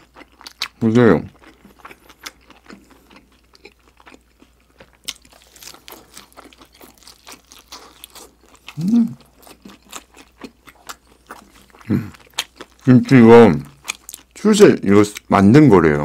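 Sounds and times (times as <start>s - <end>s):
wet mouth chewing: 0.0s - 14.4s
person humming mmm: 8.7s - 9.3s, 11.8s - 12.2s.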